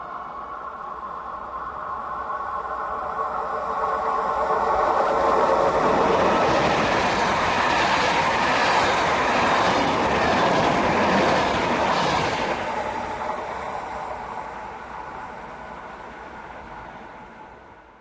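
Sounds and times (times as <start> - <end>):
train wheels rushing on rails: 0.0 - 18.0.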